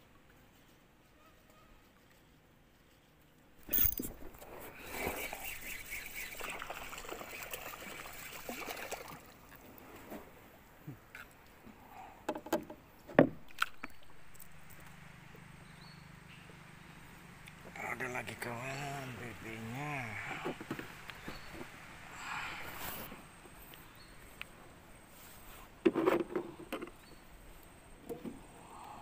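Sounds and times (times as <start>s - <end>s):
fish splashing in water: 4.9s - 9.6s.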